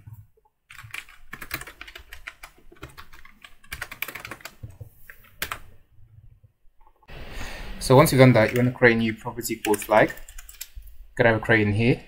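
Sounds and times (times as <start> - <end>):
computer keyboard typing clicks: 0.7 - 4.6, 9.6 - 10.8.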